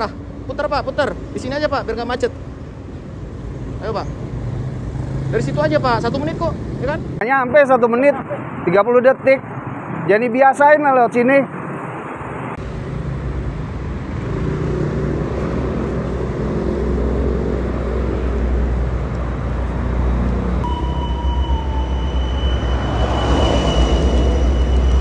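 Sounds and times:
motorbikes and road traffic: 0.0s - 25.0s
steady high-pitched tone: 20.6s - 25.0s.

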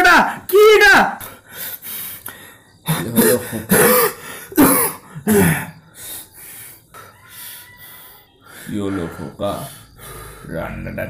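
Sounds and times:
breathing: 1.2s - 2.8s, 4.2s - 4.6s, 5.9s - 10.6s
man coughing: 2.9s - 5.8s.

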